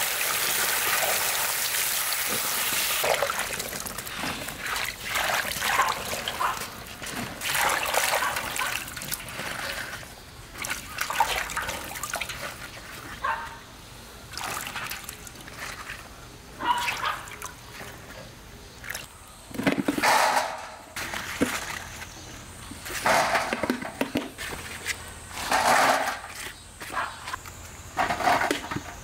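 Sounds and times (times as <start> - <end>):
water splashing and sloshing: 0.6 - 13.6, 14.2 - 27.1.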